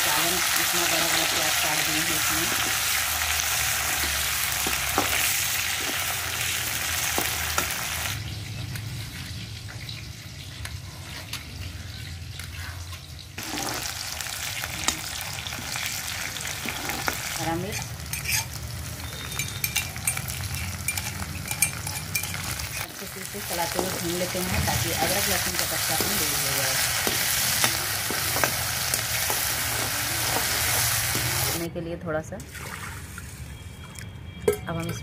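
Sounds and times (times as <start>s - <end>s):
onions sizzling in hot fat: 0.0s - 31.7s
metal ladle scraping and clinking: 16.6s - 18.6s, 19.3s - 22.9s.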